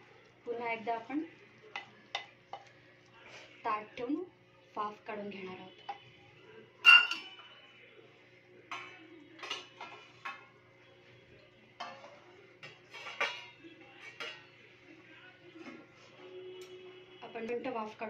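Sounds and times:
metal plate ringing on pot: 6.8s - 7.5s.

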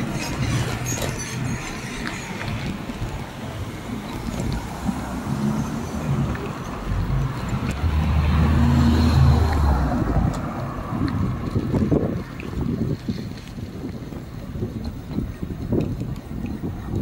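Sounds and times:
wind rumbling on microphone: 0.0s - 17.0s
car passing by: 2.0s - 12.0s.

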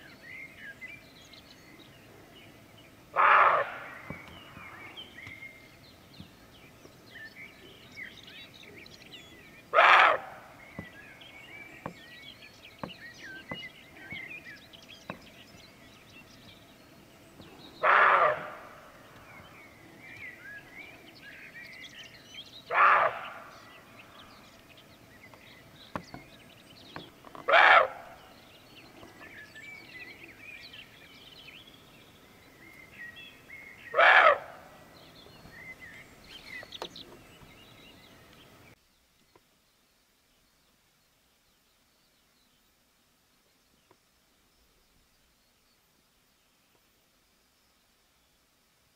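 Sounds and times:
small birds chirping: 0.0s - 48.9s
deer barking in alarm: 3.1s - 4.0s, 9.7s - 10.5s, 17.8s - 18.9s, 22.7s - 23.5s, 27.5s - 28.2s, 33.9s - 34.7s.

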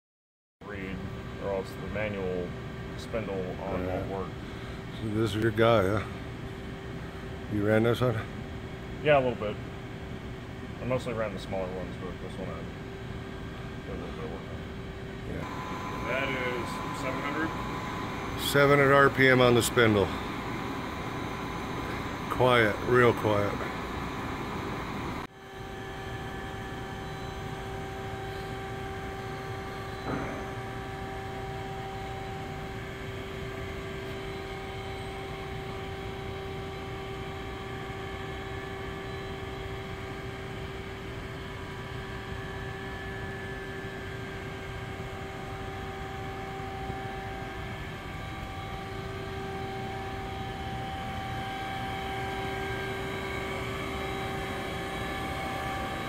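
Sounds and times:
lathe machine hum: 15.4s - 41.0s, 42.2s - 56.0s.

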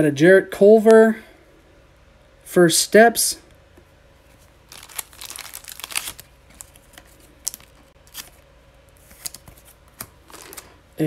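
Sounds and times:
trading cards rustling and scraping: 4.2s - 10.8s.

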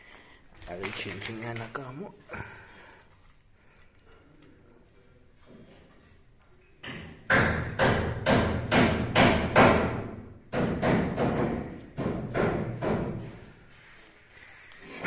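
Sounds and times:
hammer driving nails into timber: 6.8s - 13.4s.

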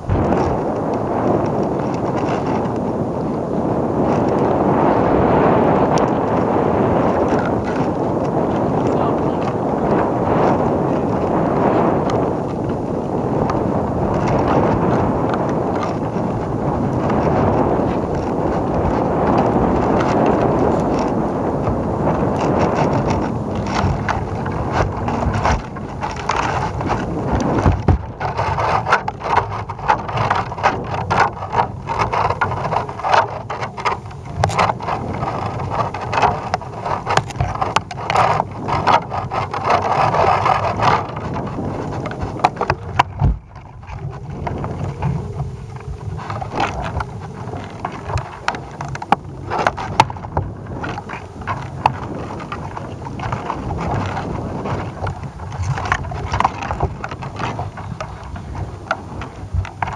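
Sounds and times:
wind buffeting microphone: 0.0s - 59.9s
knocks and scrapes of rig: 0.1s - 2.8s, 7.2s - 9.6s, 14.1s - 16.4s, 17.0s - 21.2s, 22.0s - 59.9s.

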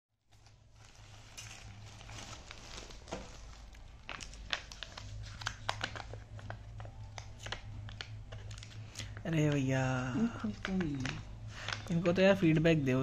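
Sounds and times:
plastic bag crinkling: 0.3s - 13.0s.

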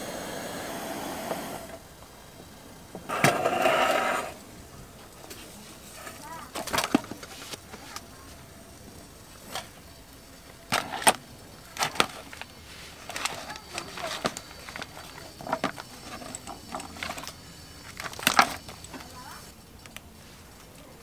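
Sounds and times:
steady low hiss: 0.0s - 21.0s
plastic crinkling: 5.3s - 8.4s, 10.4s - 21.0s.

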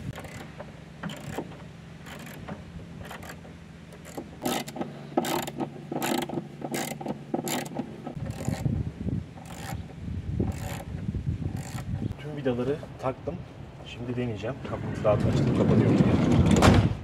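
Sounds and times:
socket ratchet clicking: 4.0s - 8.7s, 9.4s - 9.8s, 10.5s - 10.9s, 11.5s - 11.9s.

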